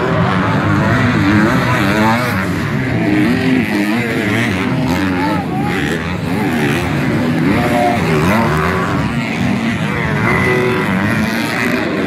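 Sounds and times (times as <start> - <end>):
motocross bike engines revving: 0.0 - 12.0.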